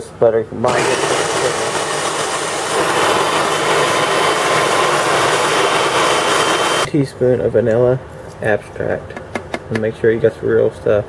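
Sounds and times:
food processor motor running: 0:00.7 - 0:06.9.

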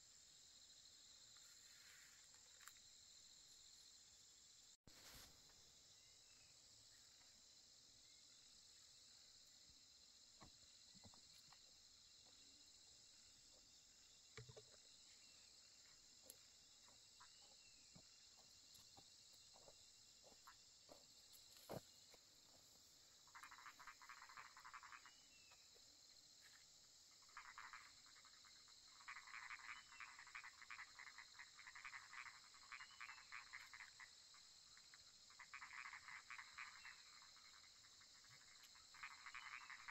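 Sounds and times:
frogs calling in pulsed trains: 0:15.1 - 0:39.9
faint ticks: 0:15.8 - 0:16.5.

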